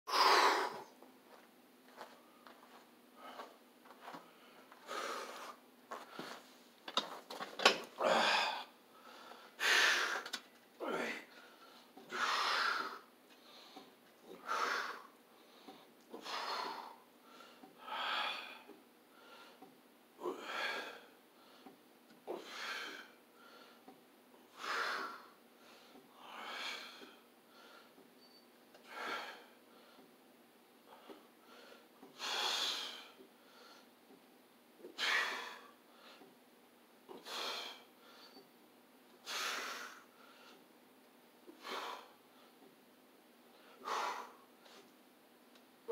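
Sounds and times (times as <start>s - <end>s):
man breathing hard: 0.1s - 0.9s, 2.7s - 6.4s, 8.0s - 10.4s, 11.0s - 28.0s, 28.8s - 30.1s, 30.8s - 33.9s, 34.9s - 36.3s, 37.1s - 38.4s, 39.2s - 40.7s, 41.5s - 42.7s, 43.5s - 44.9s.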